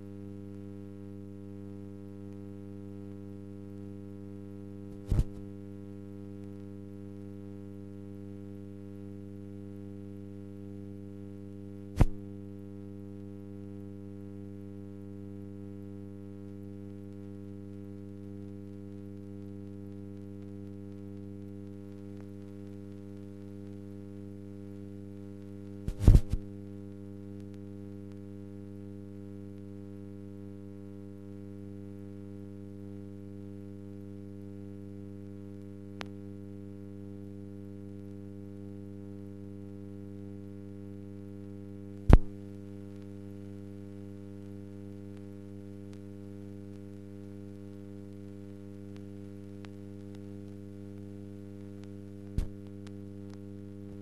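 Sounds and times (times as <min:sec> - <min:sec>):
electrical mains hum: 0:00.0 - 0:54.0
faint tick: 0:16.5 - 0:23.9, 0:27.4 - 0:28.3, 0:35.3 - 0:36.2, 0:42.0 - 0:43.2, 0:44.4 - 0:46.1, 0:46.7 - 0:54.0.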